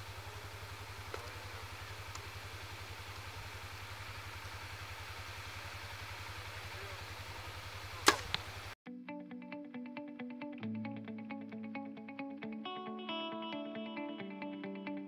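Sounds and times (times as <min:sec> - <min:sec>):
bow string snapping: 0:08.0 - 0:08.5
guitar music: 0:08.8 - 0:15.0.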